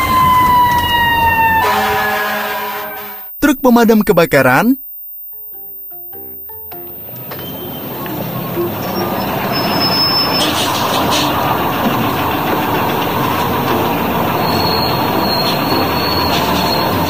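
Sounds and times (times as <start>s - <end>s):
thin high squealing tones: 6.8s - 11.6s, 13.6s - 17.0s
vehicle rumble: 6.9s - 17.0s.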